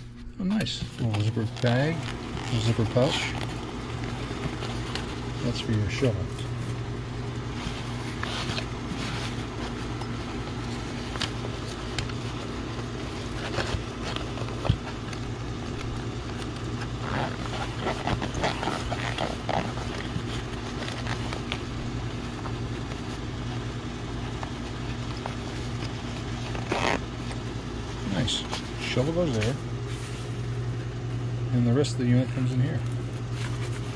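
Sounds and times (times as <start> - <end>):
low machine hum: 0.0 - 33.9
fabric bag rustling: 1.0 - 30.5
zipper rasping: 1.4 - 6.8, 16.8 - 21.9, 24.8 - 27.4.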